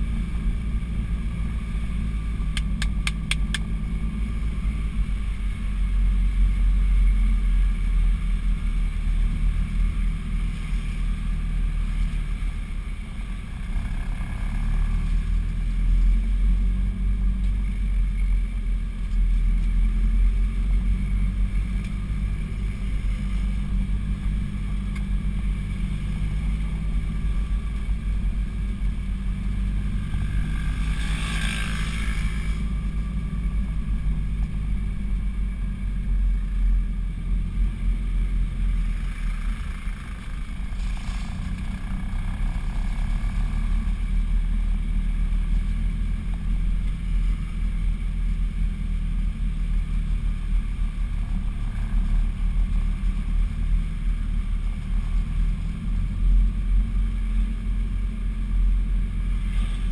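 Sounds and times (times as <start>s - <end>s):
car engine under load: 0.0s - 59.9s.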